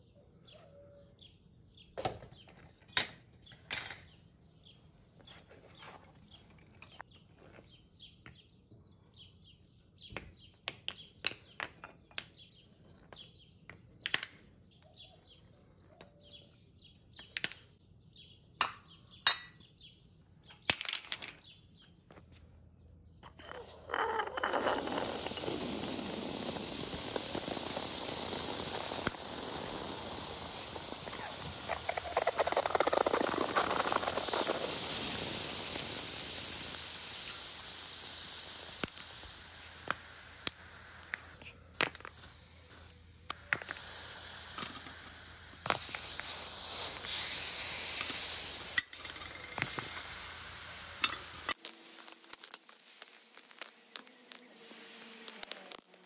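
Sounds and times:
hot metal sizzling on ice: 23.3 - 56.0
ice cracking and popping: 23.5 - 36.8.

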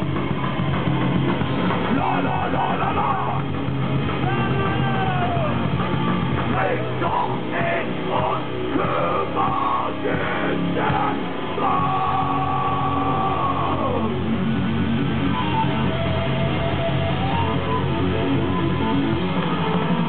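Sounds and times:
heavy metal band playing live: 0.0 - 20.0
shouted vocals: 1.9 - 3.5, 4.2 - 5.7, 6.5 - 14.2.

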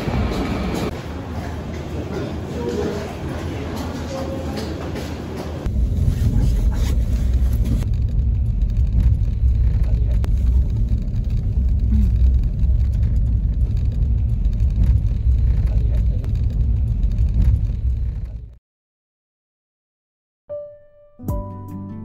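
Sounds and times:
car road rumble: 5.6 - 18.6.

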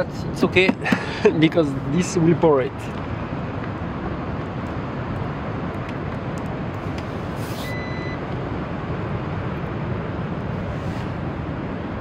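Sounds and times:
low outdoor rumble: 0.0 - 12.0
brief hiss: 7.4 - 7.8
electronic appliance beep: 7.6 - 8.2.

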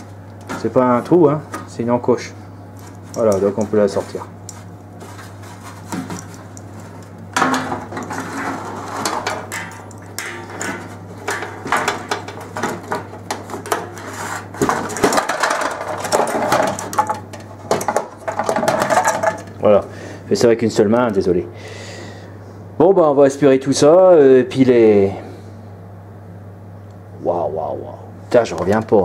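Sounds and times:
steady low hum: 0.0 - 29.0
metal and plastic parts rattling: 14.6 - 19.6.

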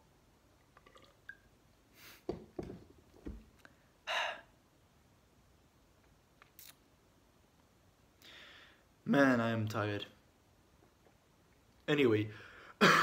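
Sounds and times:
soft knocks: 2.3 - 3.5
breathy exhale: 8.2 - 8.8.

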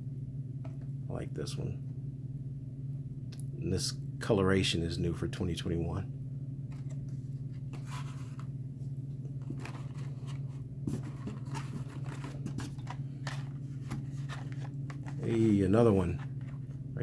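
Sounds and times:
steady low hum: 0.0 - 17.0
plastic cards scraping and clicking: 6.7 - 8.5, 9.4 - 16.8.

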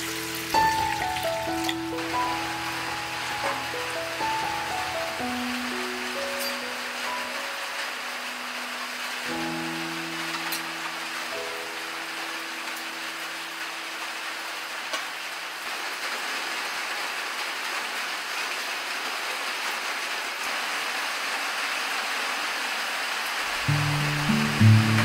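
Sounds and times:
background music held notes: 0.0 - 14.0, 23.5 - 25.0
steady rain falling: 0.0 - 25.0.

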